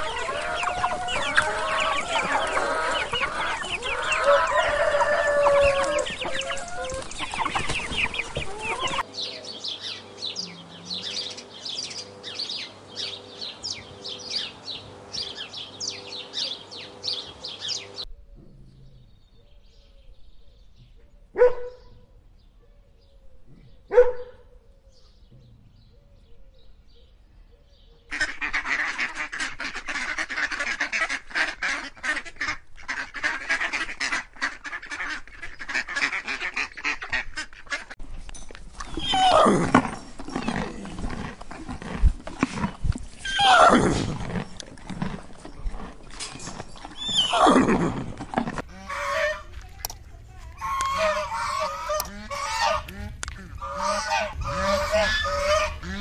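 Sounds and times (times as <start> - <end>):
chatter of overlapping animal calls: 0.0 - 9.1, 48.6 - 56.0
geese honking: 0.0 - 9.1, 28.1 - 38.0, 48.6 - 49.6, 50.5 - 56.0
horse whinnying: 38.8 - 40.7, 43.2 - 44.4, 46.6 - 48.6.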